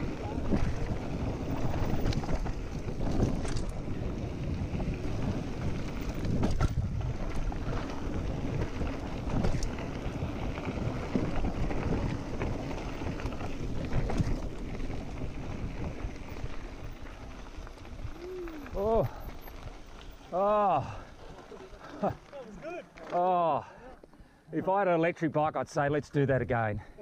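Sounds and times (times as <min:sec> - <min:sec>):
wind buffeting microphone: 0:00.0 - 0:19.9
bike tyres rumbling on dirt: 0:00.0 - 0:24.3
bike knocks and rattles: 0:00.2 - 0:16.9.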